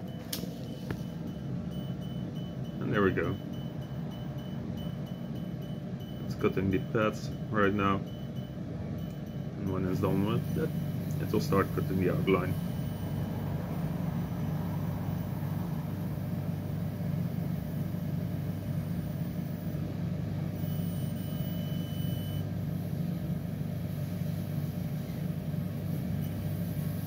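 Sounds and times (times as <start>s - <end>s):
faint high whine: 0.0s - 16.8s
laser cutter humming: 0.0s - 27.0s.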